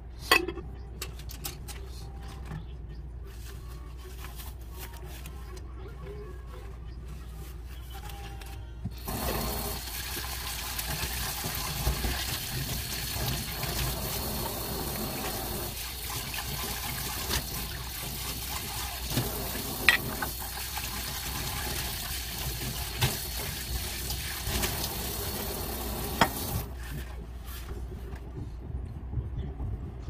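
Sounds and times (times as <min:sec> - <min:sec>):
tap water running into sink: 0:09.0 - 0:26.7.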